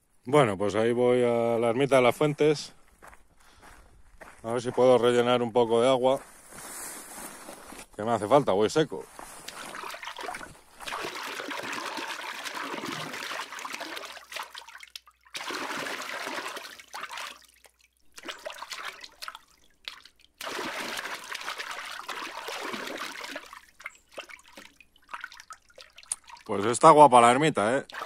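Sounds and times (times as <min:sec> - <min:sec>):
fountain water splashing: 0:09.6 - 0:14.7, 0:15.3 - 0:17.5, 0:18.2 - 0:24.0.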